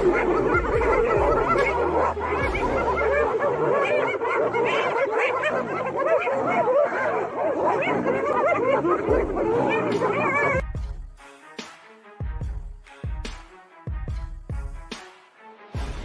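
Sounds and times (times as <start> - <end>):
hyenas giggling: 0.0 - 10.6.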